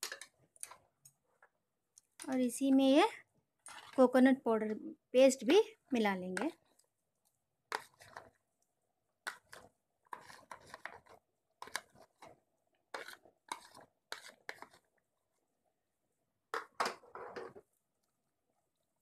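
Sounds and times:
spoon scraping plastic box: 3.6s - 4.1s, 7.7s - 8.4s, 9.2s - 14.9s.

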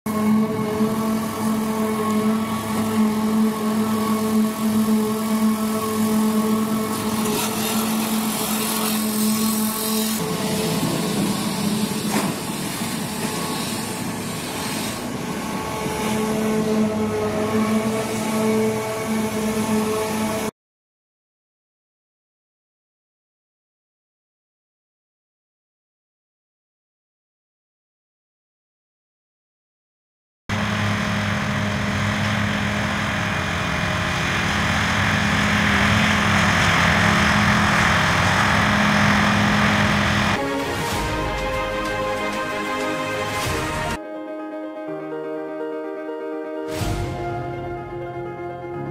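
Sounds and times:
dredger engine noise: 0.1s - 20.5s, 30.5s - 44.0s
wind: 0.1s - 20.5s, 30.5s - 44.0s
low engine hum: 30.5s - 44.0s.

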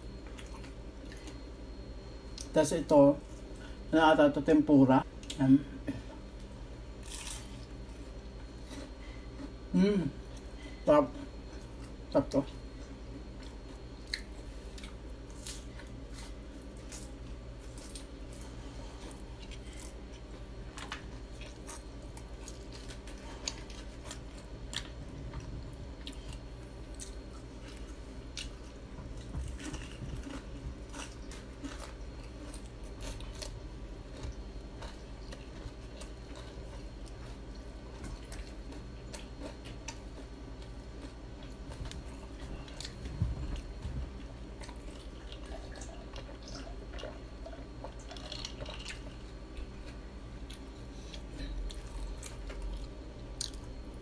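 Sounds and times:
low steady hum: 0.0s - 54.0s
crunching fried chicken: 6.9s - 10.4s, 11.6s - 53.9s
wet chewing: 12.7s - 53.8s.

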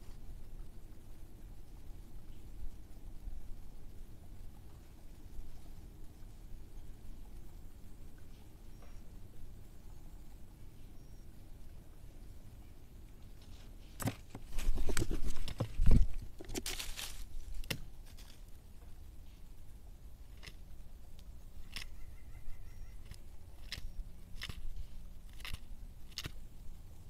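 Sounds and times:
animals rustling in dry leaves: 13.3s - 18.6s.

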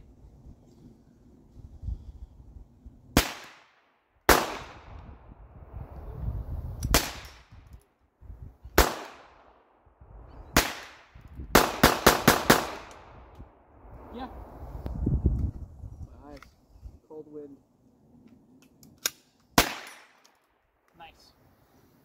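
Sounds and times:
handgun shots echoing: 19.0s - 20.4s.

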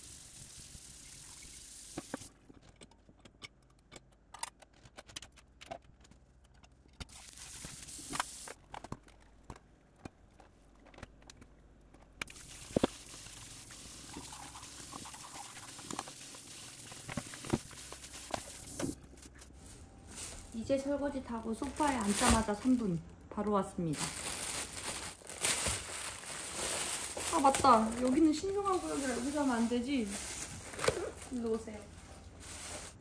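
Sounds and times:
tap running: 12.2s - 19.0s.

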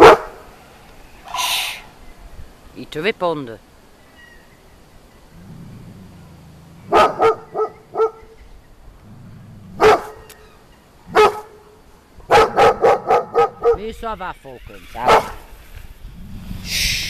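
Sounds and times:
dog barking: 0.0s - 0.4s, 6.9s - 8.4s, 9.8s - 10.3s, 11.1s - 11.7s, 12.3s - 13.9s, 15.0s - 15.5s
dog growling: 5.3s - 8.2s, 9.0s - 10.3s.

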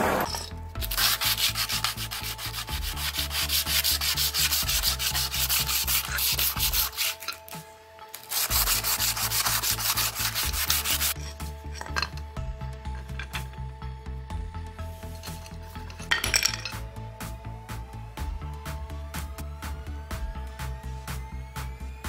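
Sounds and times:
sandpaper rubbing on wood: 0.0s - 7.4s, 8.1s - 11.2s.

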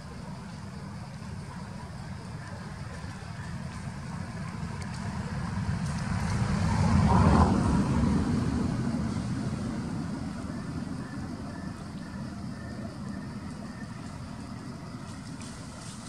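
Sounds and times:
vehicle passing by: 4.4s - 13.1s.

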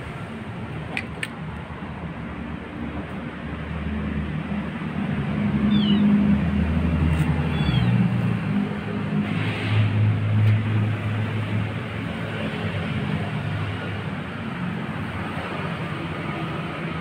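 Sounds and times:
kitten mewing: 5.7s - 6.2s, 7.4s - 8.1s.

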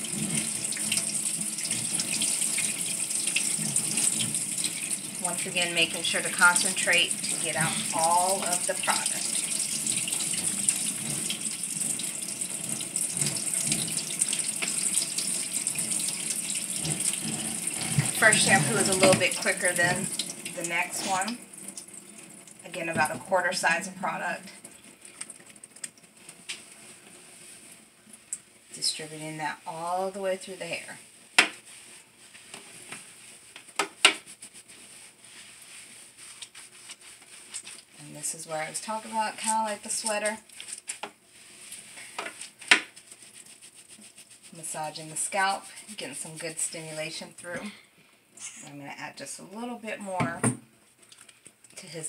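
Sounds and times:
water spraying into basin: 0.0s - 24.9s
wet hands squishing hair: 34.1s - 38.0s, 40.4s - 41.0s, 41.6s - 44.6s.

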